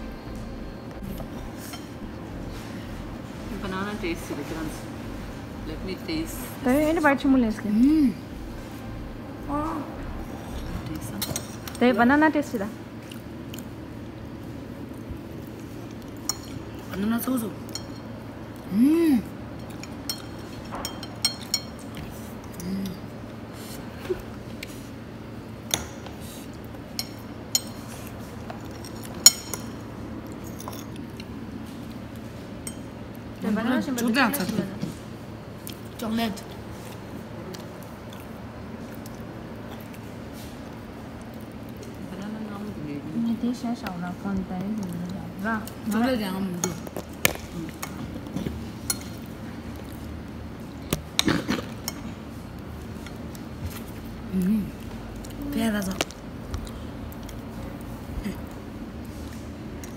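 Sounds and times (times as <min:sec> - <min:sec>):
forks clinking against plates: 0:17.7 - 0:18.1, 0:19.6 - 0:22.0, 0:28.6 - 0:29.8, 0:30.4 - 0:31.3.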